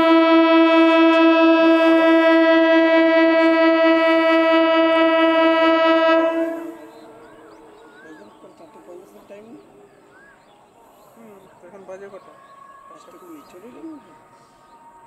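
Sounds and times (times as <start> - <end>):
train air horn blast: 0.0 - 7.2.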